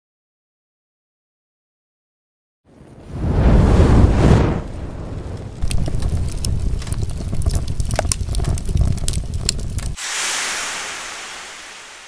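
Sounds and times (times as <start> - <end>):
fire rumble with crackles: 2.7 - 10.1
hissing whoosh: 9.9 - 12.0.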